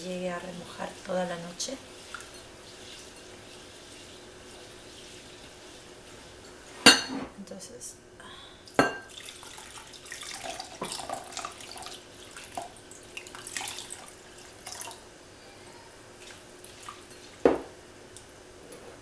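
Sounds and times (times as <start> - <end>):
water pouring and splashing: 0.4 - 6.3, 9.1 - 15.1, 16.2 - 17.4.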